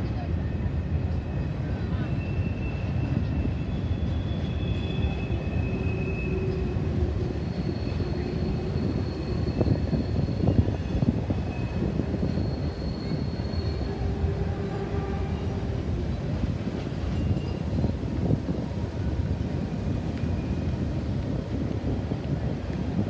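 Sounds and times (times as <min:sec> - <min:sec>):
train wheels rumbling on rail: 0:00.0 - 0:23.0
high wheel squeals: 0:01.4 - 0:18.4, 0:20.2 - 0:20.9.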